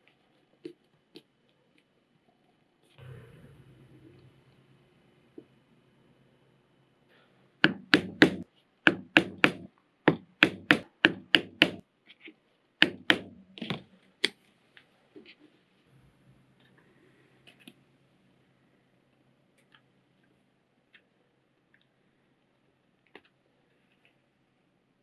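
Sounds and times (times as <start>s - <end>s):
mallet striking leather chisel: 7.6s - 11.8s, 12.8s - 13.4s.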